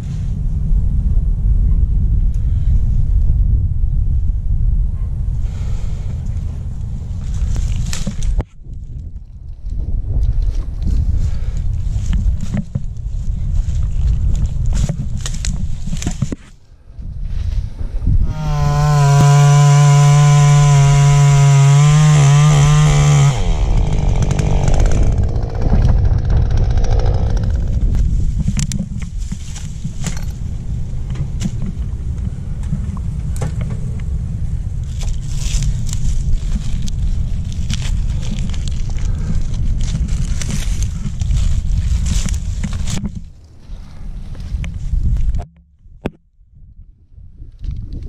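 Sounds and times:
wind on microphone: 0:00.0 - 0:48.0
chainsaw running: 0:18.2 - 0:28.3.

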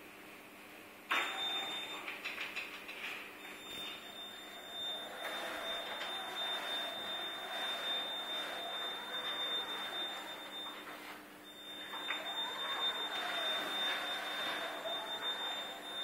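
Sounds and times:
high-pitched motor whine: 0:11.5 - 0:16.0.

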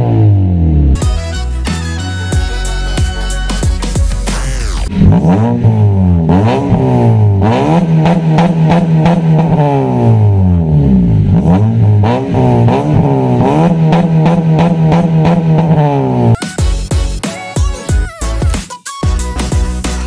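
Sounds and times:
car engine revving: 0:00.0 - 0:01.0, 0:04.2 - 0:16.4.

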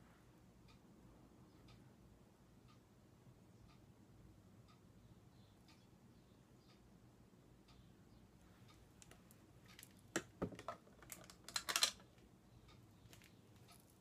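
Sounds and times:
plastic makeup items clicking: 0:09.0 - 0:12.2.

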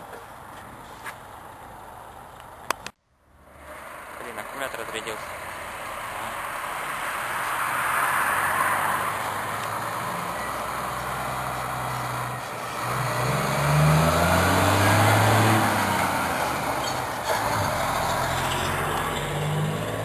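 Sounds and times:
truck diesel engine passing: 0:03.3 - 0:20.0.

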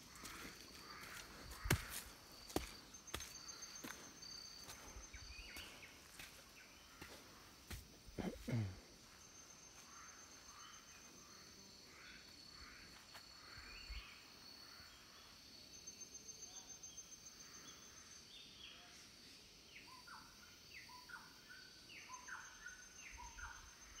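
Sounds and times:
birds calling: 0:00.0 - 0:11.1.

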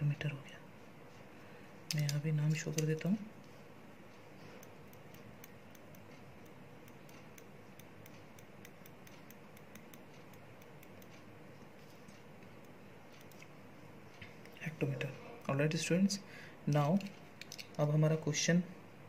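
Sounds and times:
low room hiss: 0:00.0 - 0:19.0.

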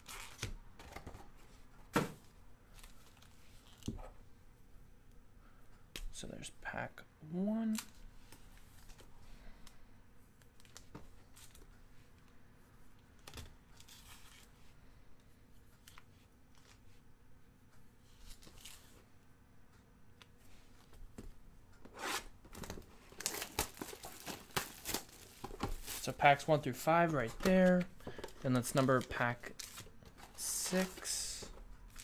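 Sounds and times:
foil packs crinkling: 0:22.6 - 0:31.2.

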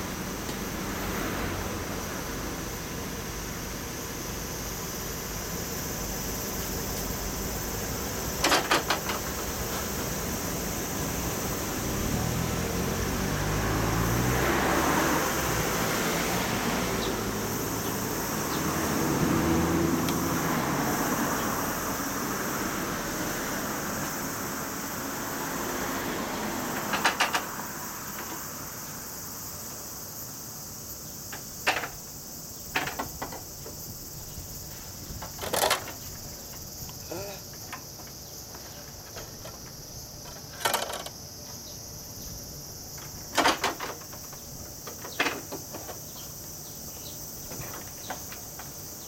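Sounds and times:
insects droning: 0:00.0 - 0:49.0.

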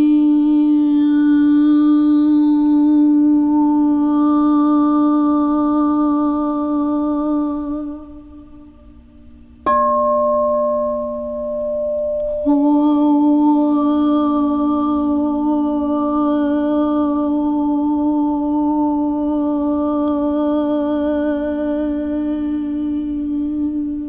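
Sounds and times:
music of long held notes: 0:00.0 - 0:24.0
higher wavering note: 0:06.0 - 0:24.0.

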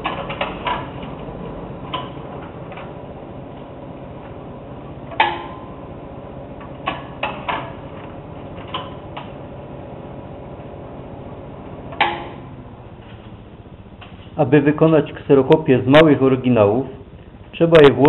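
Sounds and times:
copier motor and fan hum: 0:00.0 - 0:18.0
sharp mechanical clunks: 0:05.0 - 0:05.8, 0:11.9 - 0:12.6.

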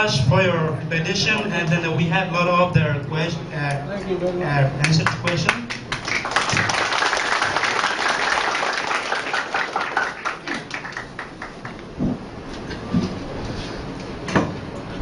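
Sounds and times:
audience applauding: 0:04.8 - 0:12.0.

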